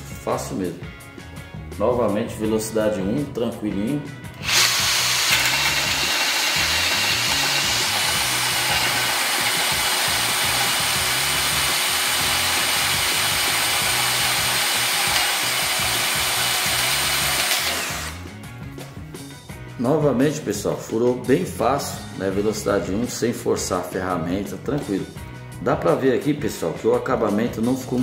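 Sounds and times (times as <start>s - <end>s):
hole saw rasping through wood: 4.4s - 18.2s
drill motor whine: 4.4s - 18.3s.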